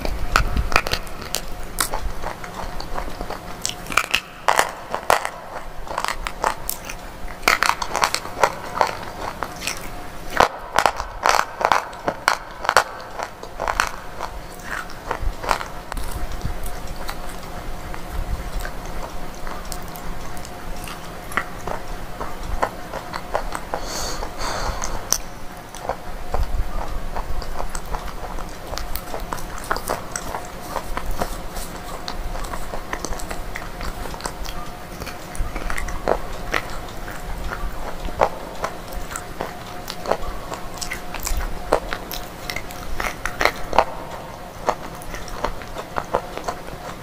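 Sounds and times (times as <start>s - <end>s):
crunching and chewing: 0.0s - 47.0s.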